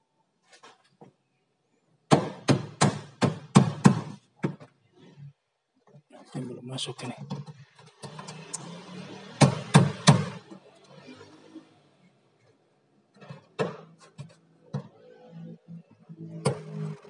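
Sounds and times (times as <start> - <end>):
sharp knocks and handling noise: 2.1 - 5.2, 7.0 - 8.7, 12.4 - 15.2.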